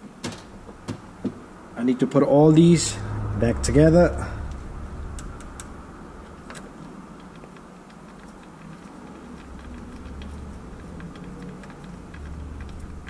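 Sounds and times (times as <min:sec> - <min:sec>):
small clicks and taps of parts: 0:05.2 - 0:13.0.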